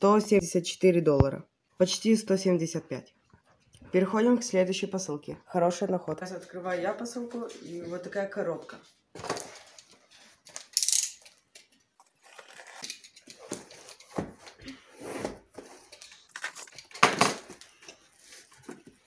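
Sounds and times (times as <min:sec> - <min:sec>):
cutter scraping through packing tape: 0:12.0 - 0:14.1.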